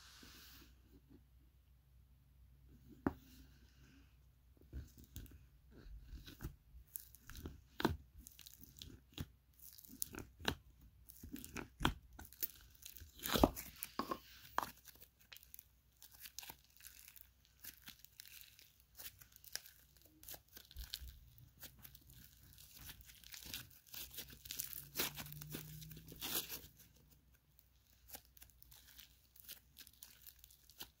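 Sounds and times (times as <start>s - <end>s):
slime crunching and popping: 6.1s - 27.0s, 27.8s - 31.0s.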